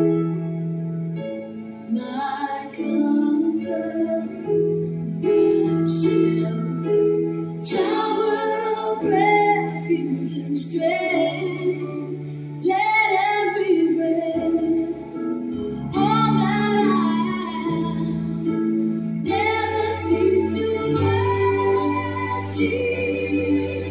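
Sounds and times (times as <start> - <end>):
sustained instrumental chords: 14.7 - 23.9
high voices singing: 19.2 - 23.9.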